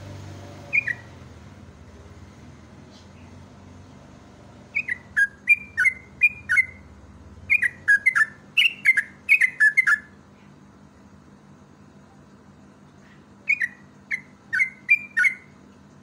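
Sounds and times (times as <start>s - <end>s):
bird singing bubbly whistles: 0.7s - 1.1s, 4.7s - 6.8s, 7.5s - 10.1s, 13.5s - 15.5s.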